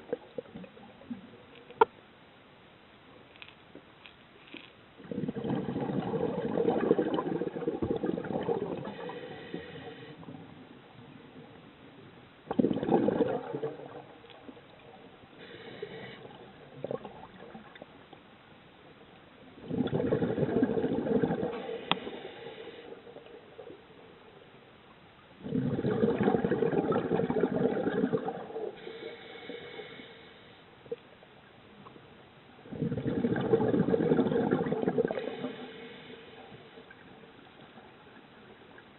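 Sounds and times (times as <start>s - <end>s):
gurgling exhaled bubbles: 5.0s - 10.6s, 12.5s - 14.6s, 15.8s - 17.8s, 19.6s - 22.4s, 25.4s - 28.8s, 32.7s - 35.7s.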